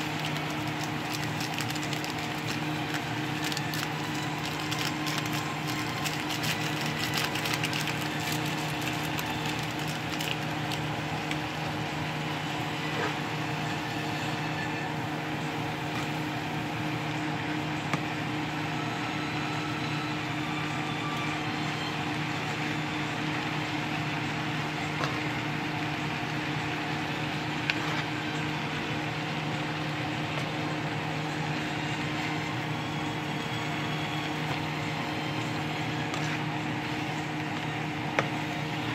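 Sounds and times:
spatula stirring in frying pan: 24.6s - 28.6s, 34.4s - 38.9s.

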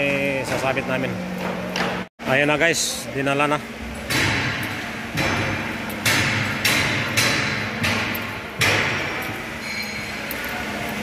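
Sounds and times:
echoing hammer strikes: 4.0s - 9.5s.

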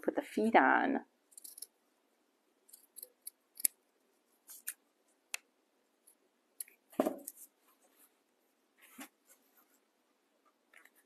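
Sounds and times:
knock: 7.0s - 7.2s.

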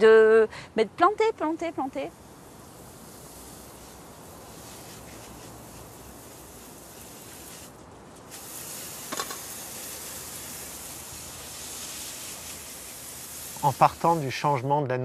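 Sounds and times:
outdoor hiss: 0.0s - 15.0s.

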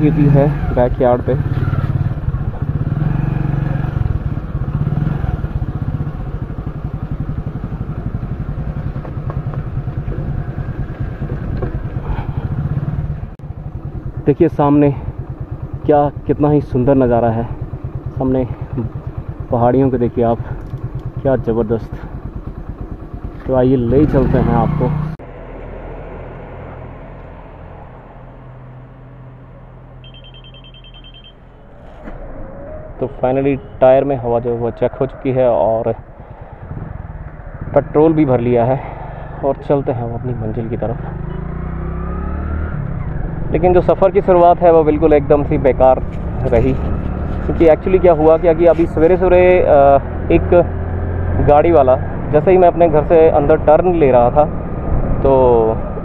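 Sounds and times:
small motorcycle engine running: 0.0s - 25.2s, 38.9s - 56.0s
short high electronic beeps: 30.0s - 31.4s.

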